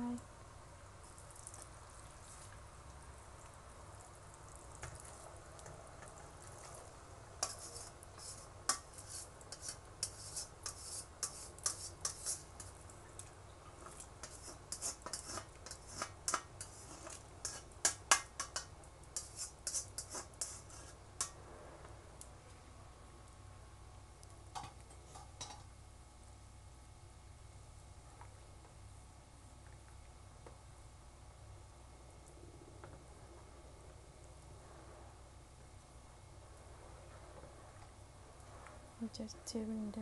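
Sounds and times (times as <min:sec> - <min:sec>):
spoon scraping metal strainer: 0:07.4 - 0:12.8, 0:13.9 - 0:21.3.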